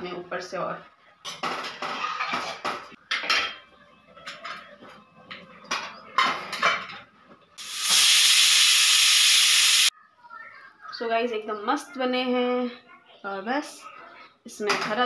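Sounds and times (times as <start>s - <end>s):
pressure cooker steam hiss: 7.6s - 9.9s.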